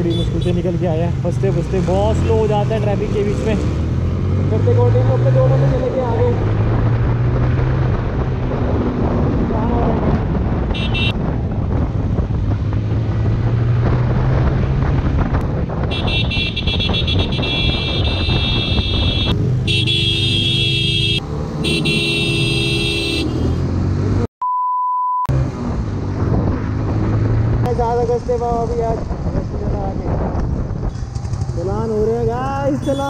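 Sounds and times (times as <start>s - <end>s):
motorcycle engine cruising: 0.0s - 24.3s, 25.3s - 33.0s
wind on microphone: 6.3s - 19.6s, 26.0s - 32.7s
vehicle horn blasts: 10.7s - 11.2s, 15.9s - 23.6s
steady beep tone: 24.4s - 25.3s.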